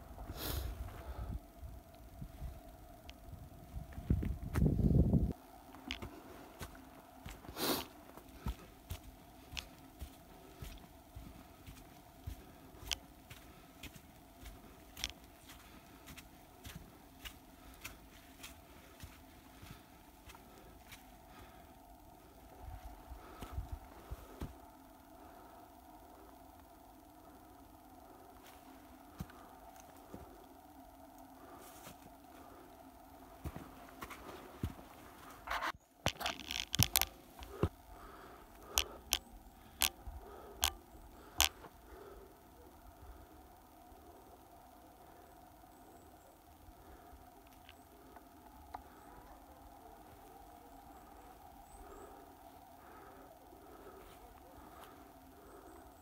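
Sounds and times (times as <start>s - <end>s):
footsteps on forest trail: 3.8s - 24.6s, 28.4s - 30.5s, 31.4s - 42.2s, 52.8s - 55.7s.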